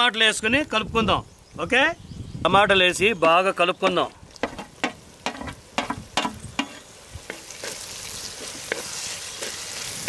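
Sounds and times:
tomatoes sizzling in hot oil: 2.9 - 10.0
utensil knocking against pan: 3.2 - 6.8.

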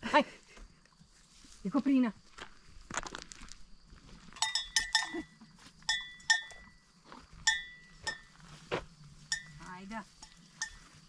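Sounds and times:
animal bells clanking: 4.3 - 8.5, 9.2 - 11.0.

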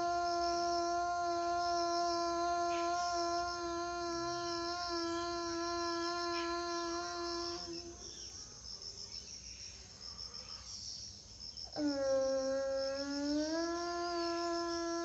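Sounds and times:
person chanting long notes: 0.0 - 8.0, 11.8 - 15.0
crickets chirping: 0.0 - 15.0.

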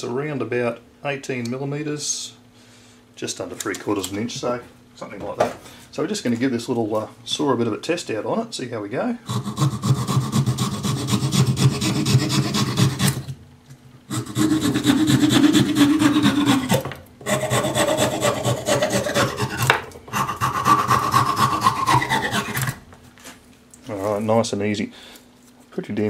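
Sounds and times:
small saw cutting branch: 9.3 - 13.3, 14.1 - 22.8.

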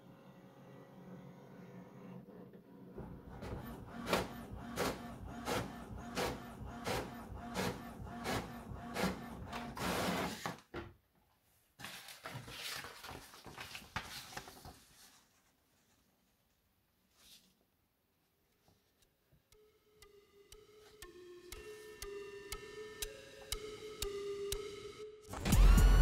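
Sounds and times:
paper feed whir: 0.7 - 10.6
printer motor hum: 3.0 - 10.4
printer carriage sweeping: 3.0 - 10.6
paper rustling: 11.8 - 16.4.

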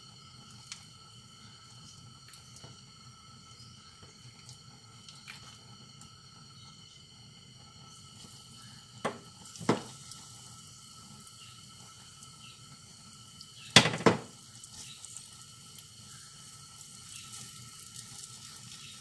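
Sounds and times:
batter sizzling in pan: 0.0 - 19.0
spatula knocking on pan: 9.0 - 9.9, 13.8 - 14.3.

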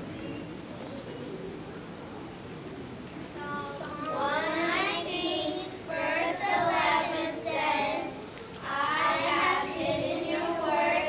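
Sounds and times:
child-like voices singing: 3.4 - 11.0.

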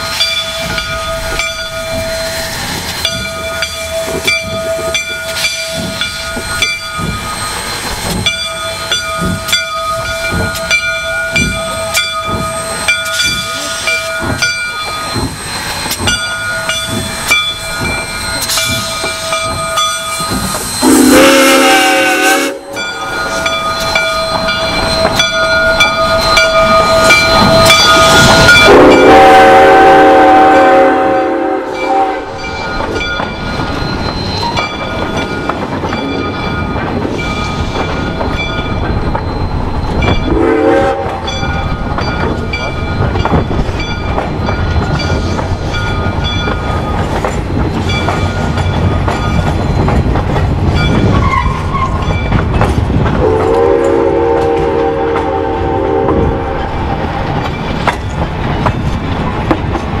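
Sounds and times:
train rumble and clatter: 0.0 - 60.0
steam whistle blowing: 20.7 - 22.9, 25.8 - 32.4, 40.3 - 41.3, 53.2 - 56.7.

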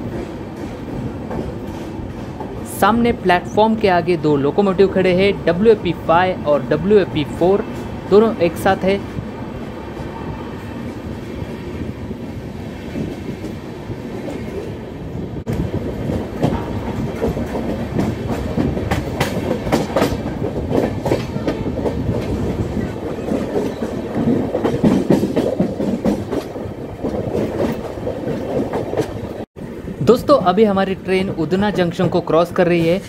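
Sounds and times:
clickety-clack over rail joints: 0.0 - 3.5, 15.4 - 29.5, 31.1 - 33.0
train wheels rumbling: 0.0 - 33.0.

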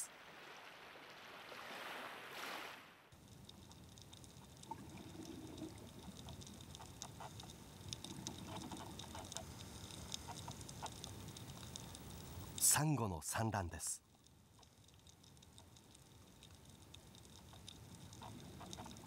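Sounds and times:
soft wash of water: 0.0 - 12.8, 14.0 - 19.0
sharp clicks and crackles: 3.2 - 12.7, 14.0 - 19.0.

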